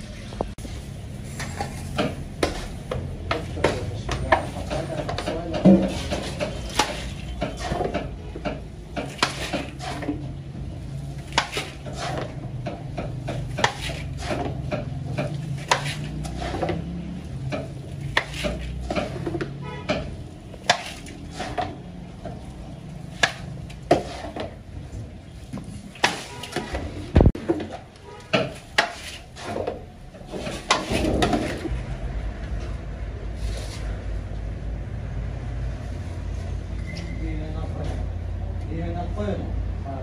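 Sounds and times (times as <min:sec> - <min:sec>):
metal bowl scraping a pot: 0:04.2 - 0:08.2, 0:09.0 - 0:10.3, 0:11.2 - 0:12.5, 0:15.3 - 0:17.1, 0:18.0 - 0:22.5, 0:23.3 - 0:24.6.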